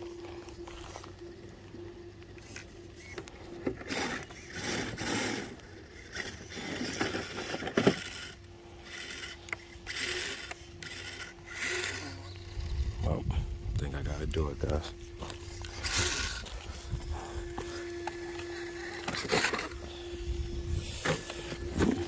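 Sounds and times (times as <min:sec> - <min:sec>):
faint steady hum: 0:00.0 - 0:22.0
footsteps on stony trail: 0:14.8 - 0:19.3.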